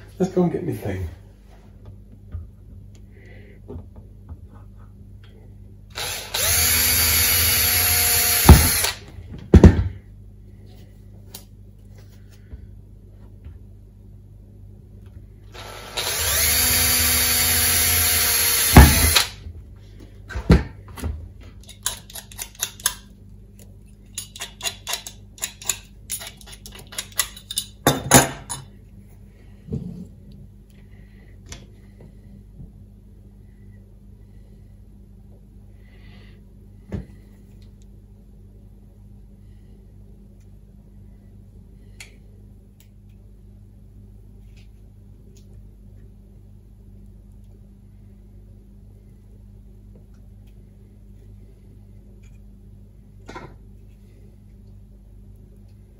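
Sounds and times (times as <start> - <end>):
cordless drill boring plastic: 5.9 - 9.0, 15.5 - 19.3.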